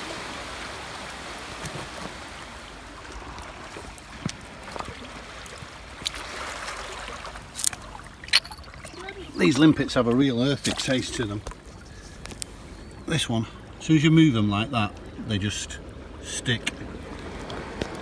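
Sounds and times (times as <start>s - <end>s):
water lapping over pebbles: 0.0s - 16.2s
pebbles clicking: 7.6s - 8.8s.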